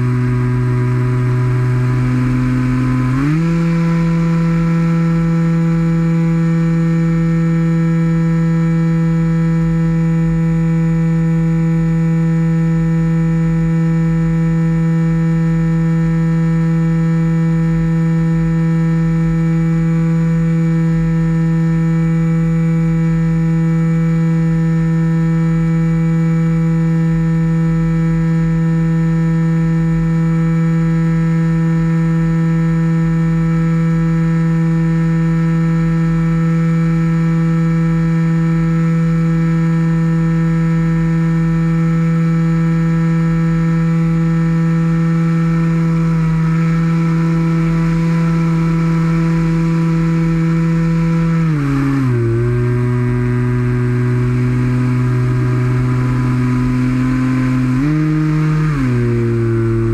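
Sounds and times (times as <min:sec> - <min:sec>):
model plane motor running: 0:00.0 - 0:08.0, 0:43.8 - 0:59.9.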